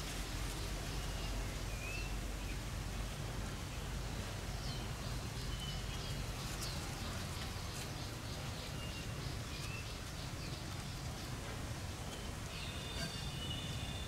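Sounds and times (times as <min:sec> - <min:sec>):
birds chirping and whistling: 0:12.1 - 0:14.0.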